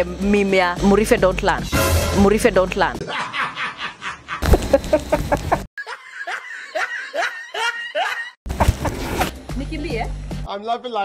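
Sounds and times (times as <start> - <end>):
men laughing: 3.0 - 9.0.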